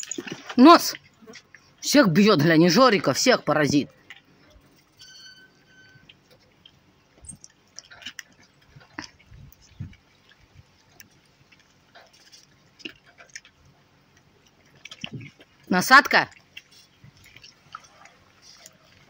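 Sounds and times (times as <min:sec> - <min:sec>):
animals chewing wetly: 0:00.0 - 0:19.0
thin high tone: 0:04.9 - 0:06.1.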